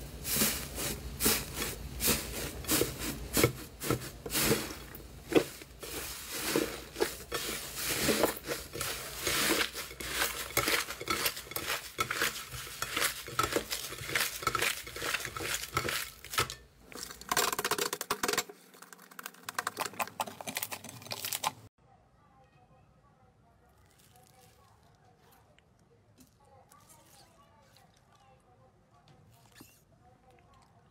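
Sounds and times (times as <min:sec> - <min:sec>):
slime crackling and squishing: 0:00.2 - 0:21.7, 0:23.6 - 0:28.3.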